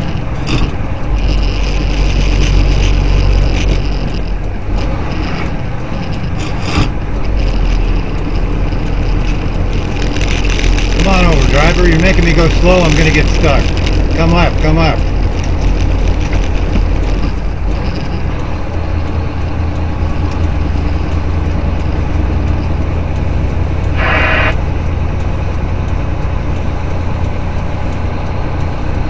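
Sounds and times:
truck engine and tyres droning: 0:00.0 - 0:29.0
short high buzz: 0:24.0 - 0:24.6.

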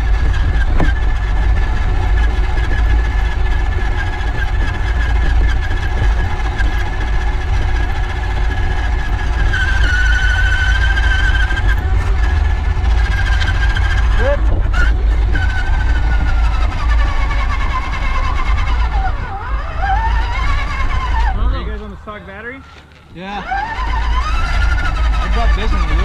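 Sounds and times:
electric motor and gears whining: 0:00.0 - 0:26.0
heavy low rumble: 0:00.0 - 0:26.0.

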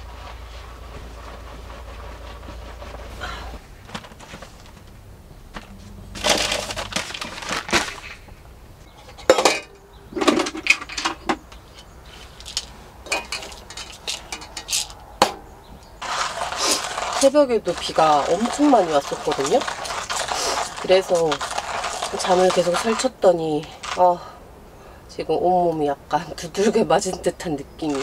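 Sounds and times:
cooler bag rustling: 0:00.0 - 0:15.0, 0:16.0 - 0:24.2
metal items clinking: 0:06.1 - 0:08.3, 0:09.0 - 0:15.4, 0:16.0 - 0:24.2.

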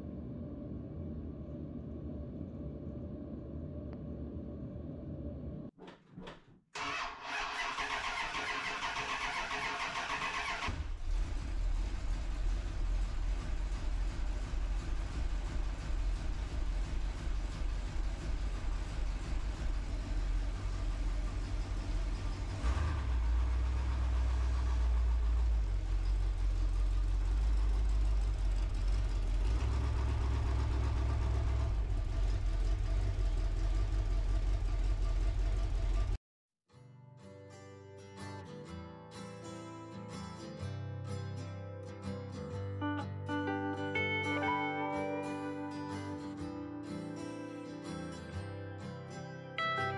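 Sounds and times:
pickup engine cranking and idling: 0:06.8 - 0:36.2.

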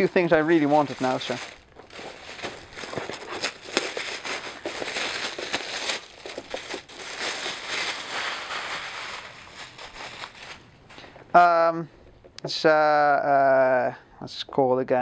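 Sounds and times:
packing wrap crinkling: 0:00.0 - 0:11.2.

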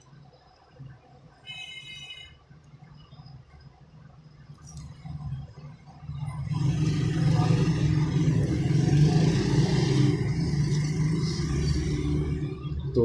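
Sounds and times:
engine rumbling: 0:02.8 - 0:13.0.

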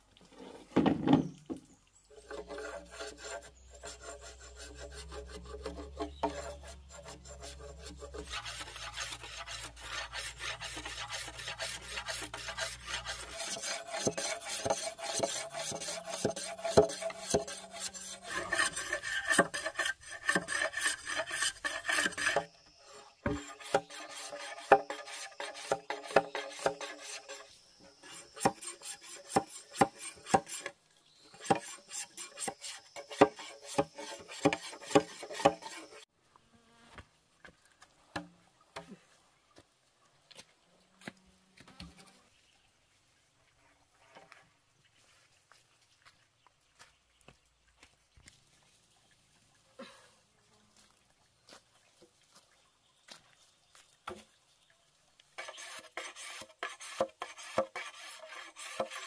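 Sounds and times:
hand tool scraping bamboo: 0:02.1 - 0:36.1, 0:55.4 - 0:59.0.

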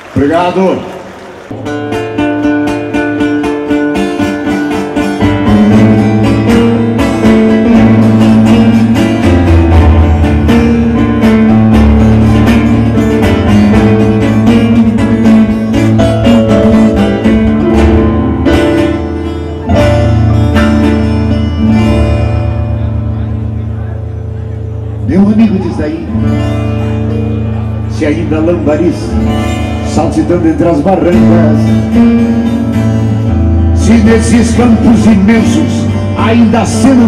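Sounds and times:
acoustic guitars plucking a melody: 0:01.5 - 0:37.0
sustained low bass notes: 0:01.5 - 0:37.0.

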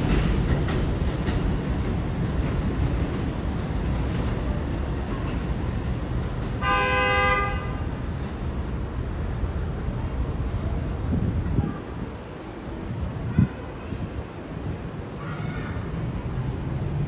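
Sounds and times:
subway train rumble: 0:00.0 - 0:17.0
train horn: 0:06.6 - 0:07.9.

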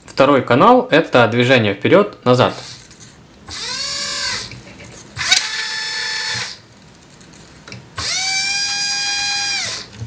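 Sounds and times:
small electric motor whining: 0:02.6 - 0:04.6, 0:05.2 - 0:06.6, 0:08.0 - 0:10.0.

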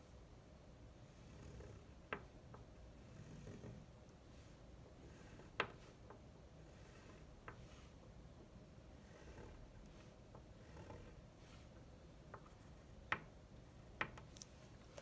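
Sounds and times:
wax crayon drawn over paper: 0:03.0 - 0:08.0, 0:08.8 - 0:11.8.

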